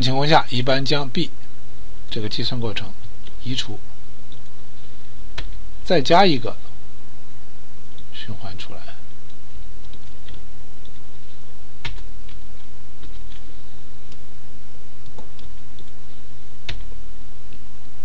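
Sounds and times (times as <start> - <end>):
low electrical hum: 0.0 - 18.0
computer keyboard keystrokes: 9.3 - 13.4.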